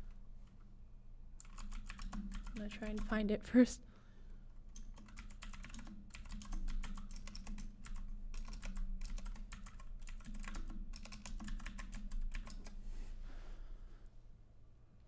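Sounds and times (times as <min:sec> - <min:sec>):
low steady hum: 0:00.0 - 0:15.0
computer keyboard typing: 0:01.4 - 0:03.2, 0:04.7 - 0:12.8.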